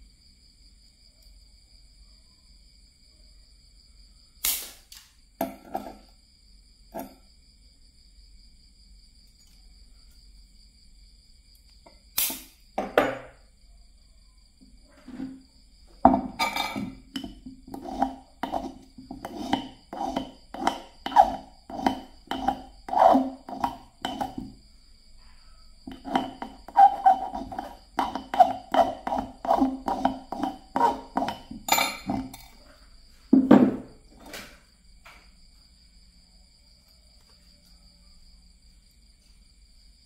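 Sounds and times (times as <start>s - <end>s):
metal file rasping on wire: 17.2s - 24.5s, 25.9s - 32.5s.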